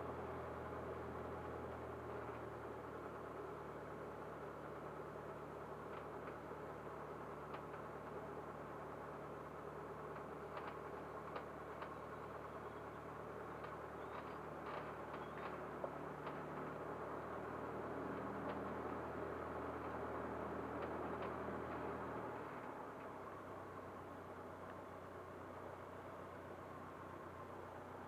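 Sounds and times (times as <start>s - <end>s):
small plane engine droning: 0.0s - 28.0s
small clicks: 10.1s - 12.1s.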